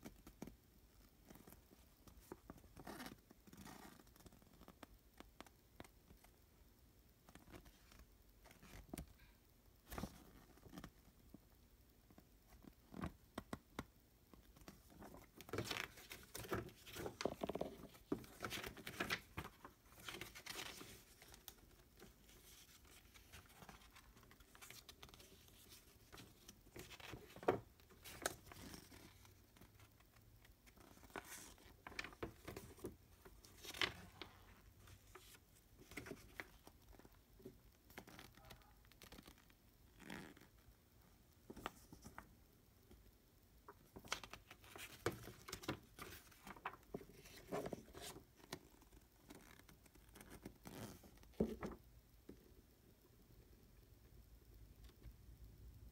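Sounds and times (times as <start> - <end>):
paper rustling: 14.6 - 30.0, 30.6 - 37.1, 43.8 - 48.6.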